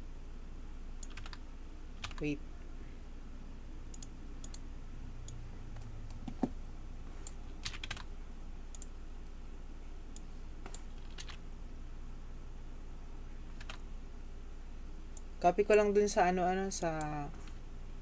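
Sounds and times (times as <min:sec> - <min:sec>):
steady low hum: 0:00.0 - 0:18.0
computer keys clicking: 0:01.0 - 0:01.4, 0:02.0 - 0:02.3, 0:03.9 - 0:04.6, 0:07.2 - 0:08.1, 0:08.7 - 0:08.9, 0:10.1 - 0:11.4, 0:13.5 - 0:13.8.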